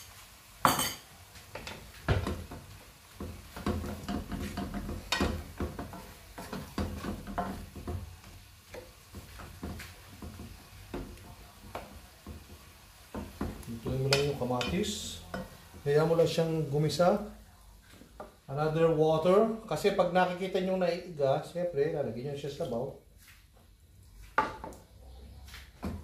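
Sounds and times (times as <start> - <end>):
sauce sizzling: 0.0 - 20.7
wooden spatula scraping pan: 1.6 - 16.4.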